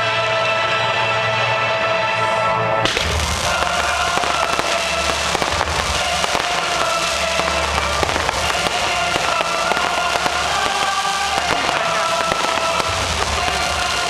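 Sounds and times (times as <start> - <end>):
music with long held notes: 0.0 - 14.0
fireworks cracking and popping: 2.8 - 14.0.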